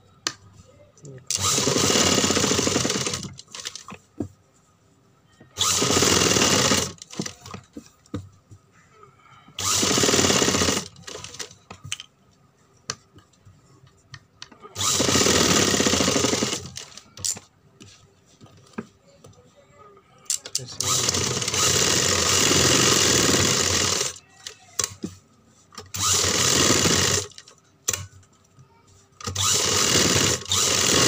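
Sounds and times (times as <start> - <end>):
sewing machine stitching: 1.3 - 3.9, 5.6 - 7.6, 9.6 - 11.5, 14.8 - 17.0, 20.8 - 24.2, 25.8 - 27.5, 29.2 - 31.0.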